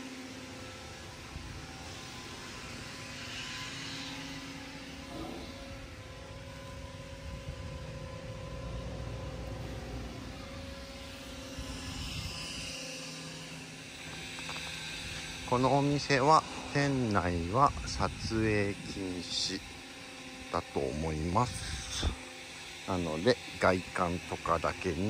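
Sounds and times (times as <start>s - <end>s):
wind rushing over microphone: 6.8s - 9.0s, 10.5s - 12.8s, 16.9s - 19.0s.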